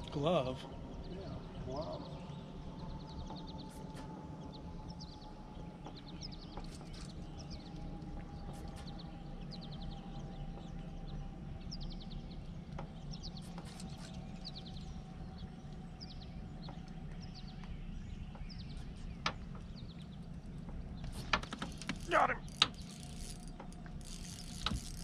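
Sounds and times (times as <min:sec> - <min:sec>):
birds chirping: 0:00.0 - 0:25.0
steady low hum: 0:00.0 - 0:25.0.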